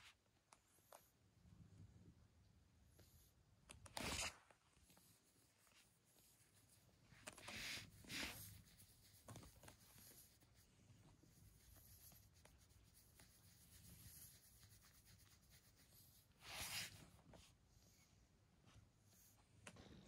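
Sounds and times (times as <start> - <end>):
hand rubbing cat fur: 4.2 - 19.4.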